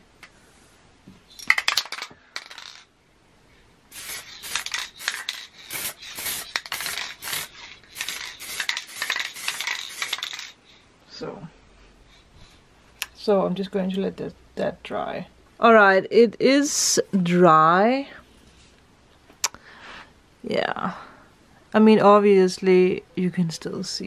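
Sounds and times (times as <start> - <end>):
spray can ball rattling: 1.3 - 2.8, 3.9 - 10.6.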